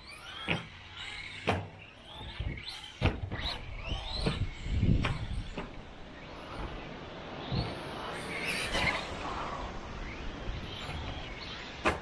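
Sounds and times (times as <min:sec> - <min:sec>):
rc car electric motor whining: 0:00.0 - 0:12.0
rc car landing knocks: 0:00.2 - 0:05.8, 0:10.7 - 0:12.0.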